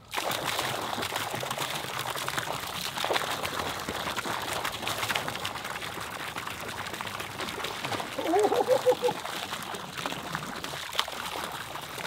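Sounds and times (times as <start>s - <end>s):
water gushing into a pond: 0.0s - 12.0s.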